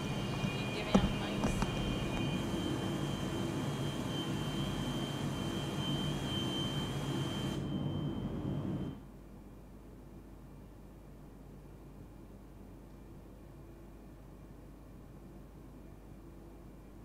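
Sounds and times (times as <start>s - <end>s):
mill machinery humming: 0.0s - 9.0s
high machinery whine: 0.0s - 9.1s.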